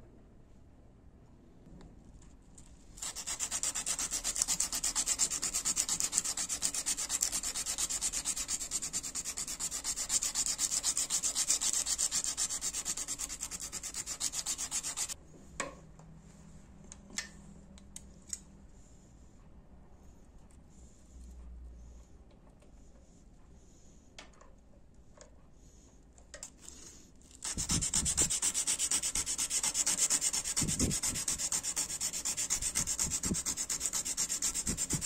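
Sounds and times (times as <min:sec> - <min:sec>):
abrasive cloth rasping on blade: 0:27.4 - 0:35.0.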